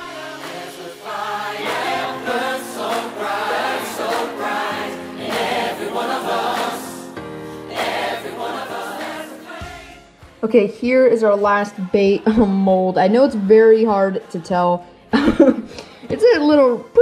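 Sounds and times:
choir singing over held chords: 0:00.0 - 0:10.4.

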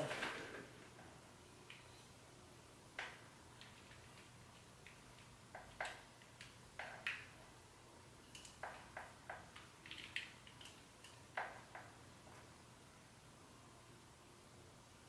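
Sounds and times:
curling iron clicks and taps: 0:03.0 - 0:07.4.

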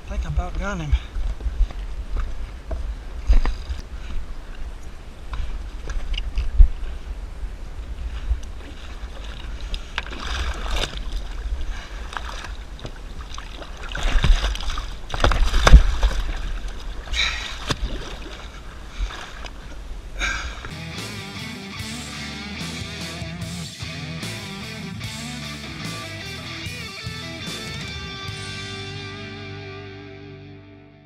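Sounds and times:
fish splashing in water: 0:09.0 - 0:19.6.

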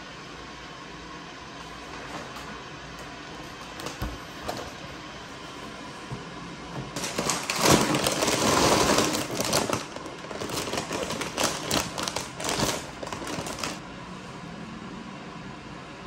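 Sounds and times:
paper bag rustling: 0:01.6 - 0:02.6, 0:06.8 - 0:13.8
chip bag crinkling: 0:06.9 - 0:13.8.

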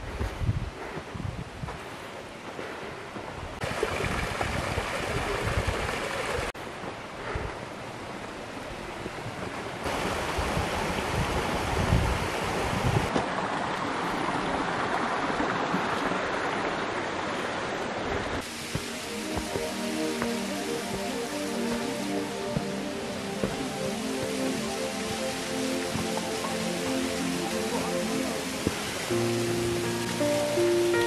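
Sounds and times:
wind buffeting microphone: 0:00.0 - 0:02.1, 0:03.2 - 0:06.5, 0:08.8 - 0:13.1
rushing stream water: 0:00.3 - 0:31.0
music: 0:18.5 - 0:31.0.

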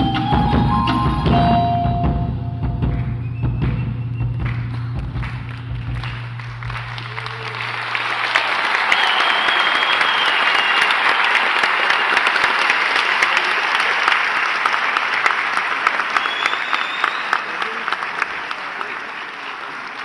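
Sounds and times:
large audience applauding: 0:02.9 - 0:20.0.

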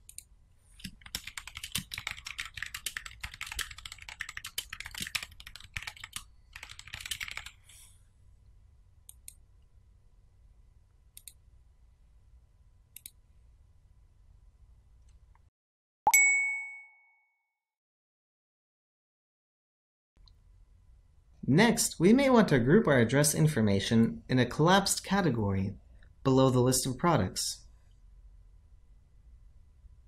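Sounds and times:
typing on computer keyboard: 0:00.8 - 0:07.6.

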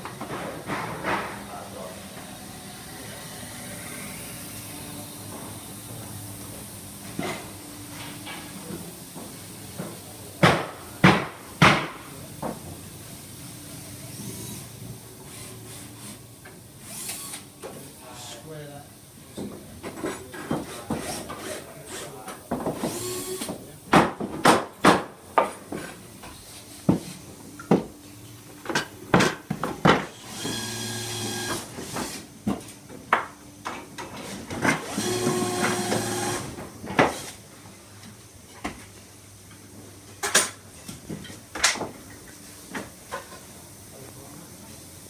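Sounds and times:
cordless drill whining: 0:30.3 - 0:31.6, 0:34.9 - 0:36.4.

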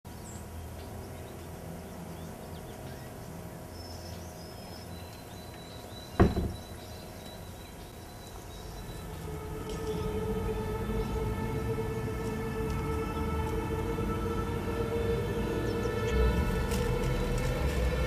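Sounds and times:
low outdoor hum: 0:00.1 - 0:18.0
door shutting with a bang: 0:06.2 - 0:06.9.

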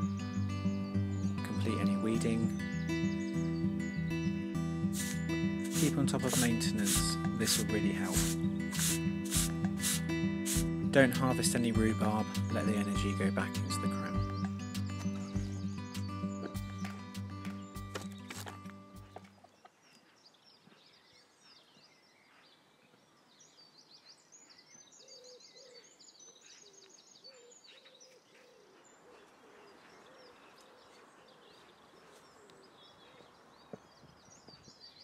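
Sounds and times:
music: 0:00.0 - 0:19.2
birds chirping: 0:00.0 - 0:35.0.

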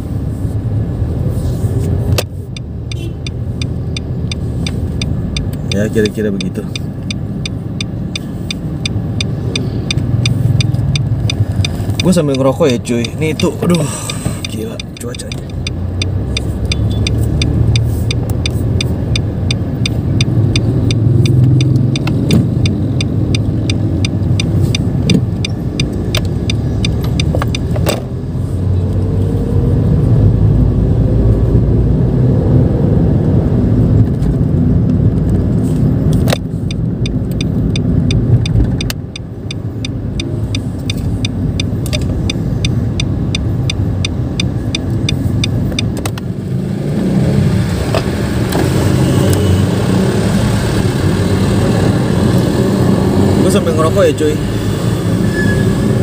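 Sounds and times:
car engine: 0:00.0 - 0:56.0
road noise: 0:00.0 - 0:56.0
turn-signal relay ticking: 0:02.5 - 0:27.7, 0:36.3 - 0:46.0.

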